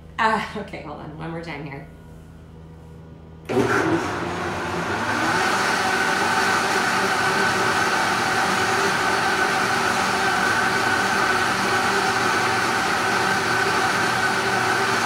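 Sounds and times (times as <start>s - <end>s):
blender motor whining: 3.5s - 15.0s.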